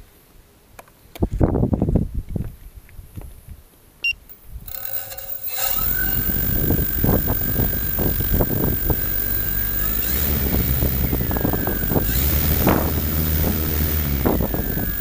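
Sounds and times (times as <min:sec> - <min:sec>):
drone motors and propellers whining: 0:04.7 - 0:15.0
wind buffeting microphone: 0:05.8 - 0:15.0.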